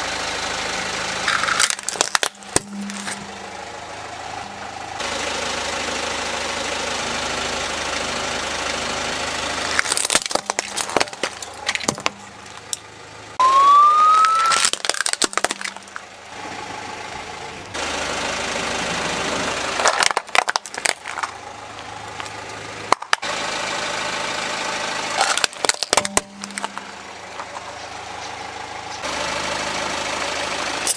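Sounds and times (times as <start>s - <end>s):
car engine idling: 0.0s - 30.9s
plastic toys crushed under tyre: 1.3s - 3.2s, 9.7s - 12.9s, 13.8s - 16.1s, 19.8s - 21.4s, 22.1s - 23.3s, 25.2s - 26.9s
short rising squeal: 13.4s - 14.7s.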